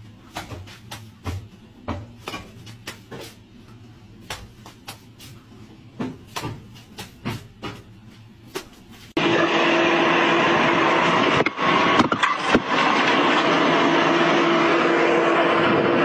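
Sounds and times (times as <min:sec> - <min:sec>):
low steady hum: 0:00.0 - 0:09.2.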